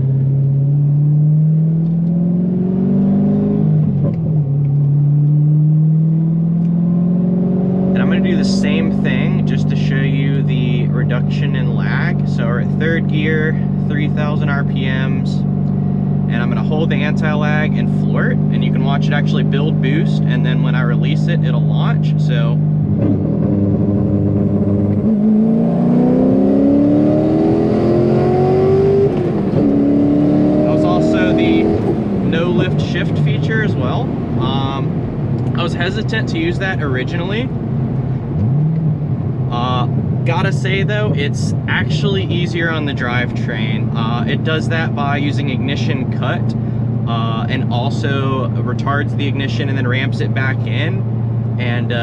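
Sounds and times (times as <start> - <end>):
car engine from inside cabin: 0.0 - 52.0.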